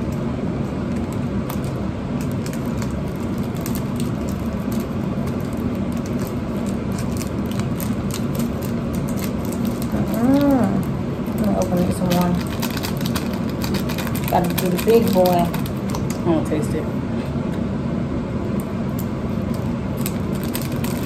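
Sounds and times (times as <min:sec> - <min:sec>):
steady low hum: 0:00.0 - 0:21.0
plastic sachets crinkling: 0:00.9 - 0:16.3, 0:18.9 - 0:21.0.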